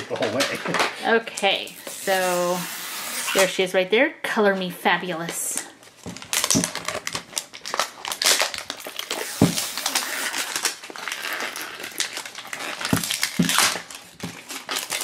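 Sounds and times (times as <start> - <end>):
plastic wrapper crinkling: 5.6 - 15.0
handling knocks on plastic: 6.0 - 7.2, 9.3 - 9.8, 12.9 - 14.4.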